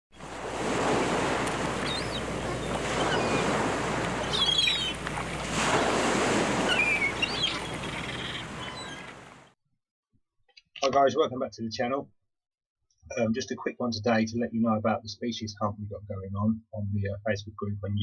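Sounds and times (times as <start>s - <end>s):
sea surf breaking: 0.1s - 9.5s
wind: 0.1s - 9.5s
short bird calls: 1.6s - 5.9s, 6.6s - 9.3s.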